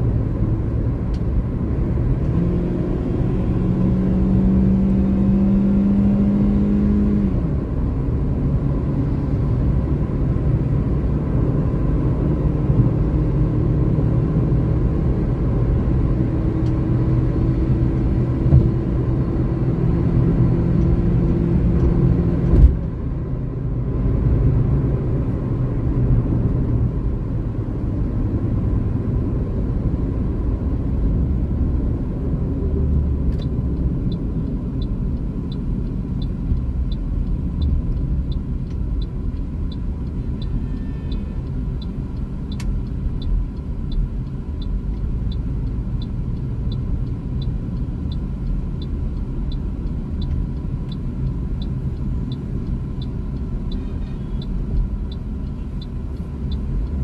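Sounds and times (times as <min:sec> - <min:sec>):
road and engine rumble: 0:00.0 - 0:57.0
turn signal ticking: 0:15.0 - 0:57.0.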